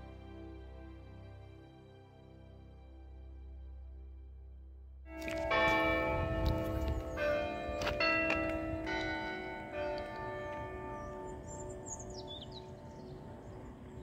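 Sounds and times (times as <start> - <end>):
soft background music: 0.0 - 8.0
church bells ringing: 5.1 - 14.0.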